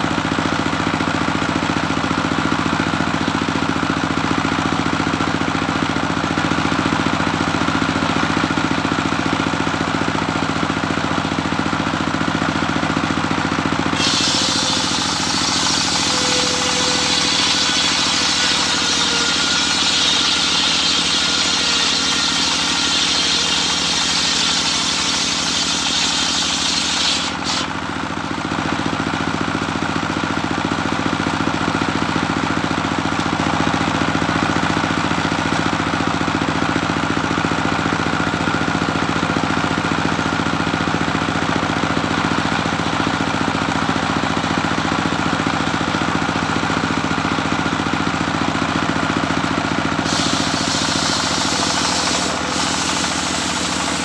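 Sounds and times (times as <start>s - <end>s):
engine running steadily: 0.0s - 54.0s
circular saw cutting wood: 13.7s - 28.0s, 50.0s - 54.0s
saw blade spinning free: 13.9s - 27.8s, 50.0s - 54.0s.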